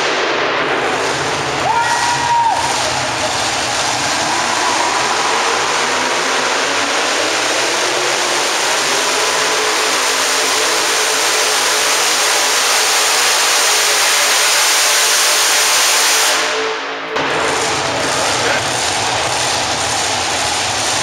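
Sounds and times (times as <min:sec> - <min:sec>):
loud truck engine at full throttle: 0:00.0 - 0:21.0.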